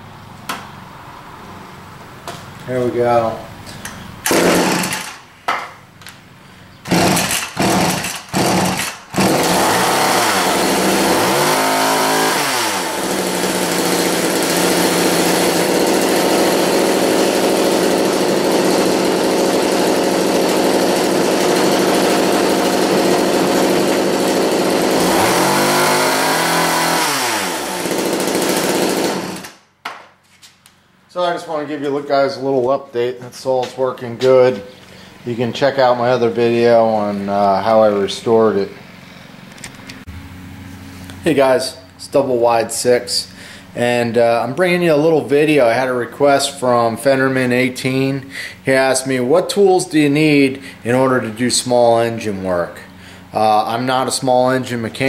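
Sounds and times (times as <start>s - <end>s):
chainsaw pull-starting and revving: 3.8s - 5.3s, 6.9s - 29.6s.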